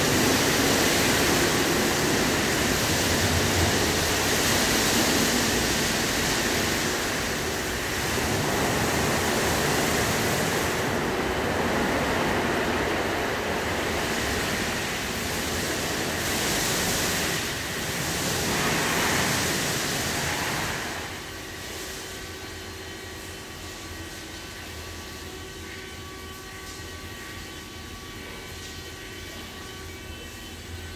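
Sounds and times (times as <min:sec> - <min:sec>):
water spray hissing onto car: 0:00.0 - 0:11.1, 0:13.4 - 0:22.4.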